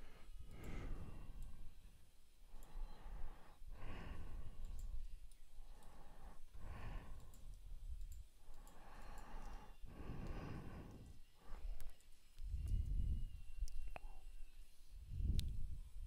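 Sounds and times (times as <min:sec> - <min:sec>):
computer mouse clicks: 0:02.5 - 0:03.0, 0:04.2 - 0:06.1, 0:06.9 - 0:10.4, 0:11.0 - 0:12.8
person breathing into microphone: 0:02.5 - 0:05.0, 0:08.6 - 0:11.8.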